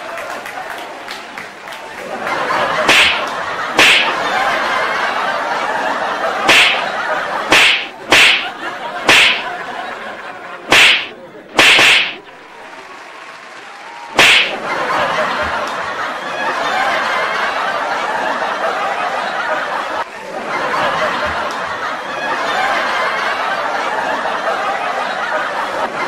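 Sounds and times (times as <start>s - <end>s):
crowd murmur: 0.0s - 13.2s
punch sound effects: 2.9s - 4.2s, 6.5s - 6.9s, 7.5s - 8.5s, 9.1s - 9.5s, 10.7s - 12.3s, 14.2s - 14.6s.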